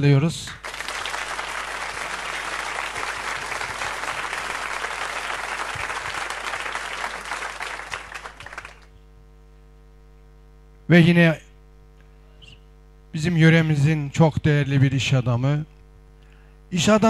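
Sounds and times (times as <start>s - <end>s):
applause: 0.5s - 9.0s.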